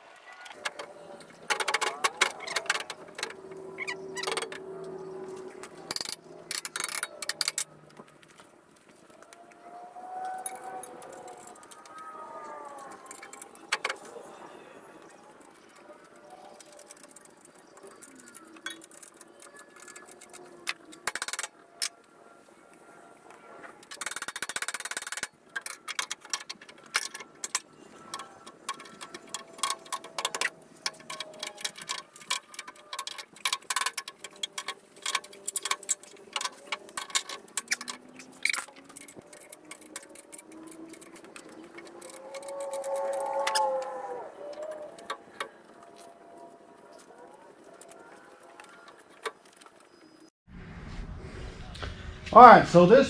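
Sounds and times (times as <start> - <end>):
small metal parts clicking and rattling: 0.4 - 22.1, 23.8 - 50.3
loud rush of noise: 50.5 - 53.0.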